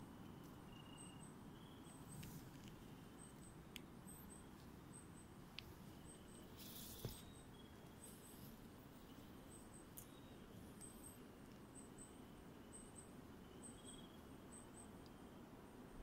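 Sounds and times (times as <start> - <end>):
insects chirping: 0.0 - 16.0
quiet hiss: 0.0 - 16.0.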